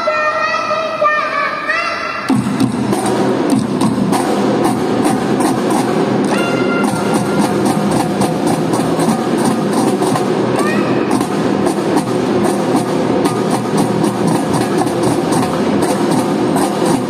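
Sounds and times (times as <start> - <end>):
snare and bass drums: 2.3 - 17.0
short melodic notes: 6.3 - 7.6.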